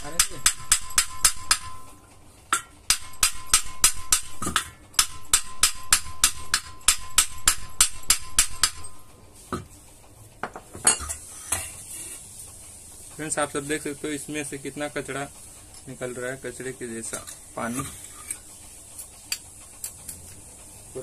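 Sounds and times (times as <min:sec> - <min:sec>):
hammer striking metal pump: 0:00.0 - 0:09.7.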